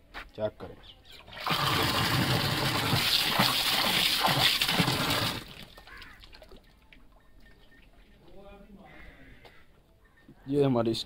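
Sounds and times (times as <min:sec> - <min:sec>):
water gushing from tap: 0:01.3 - 0:06.1.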